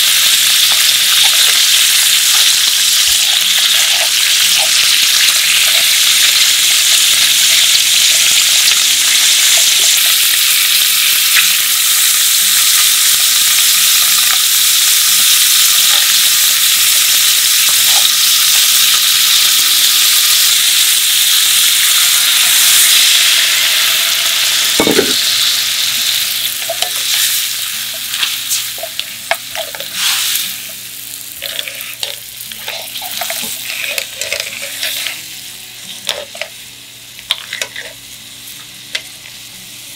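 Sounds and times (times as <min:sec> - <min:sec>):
seafood sizzling in frying pan: 0:00.0 - 0:39.9
tongs stirring: 0:26.5 - 0:35.2, 0:37.3 - 0:38.0
wine simmering and sputtering: 0:31.3 - 0:35.4.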